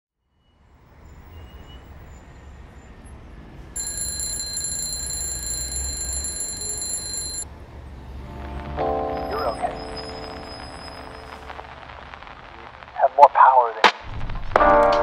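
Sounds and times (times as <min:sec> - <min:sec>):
phone alarm high-pitched tone: 0:03.8 - 0:07.4.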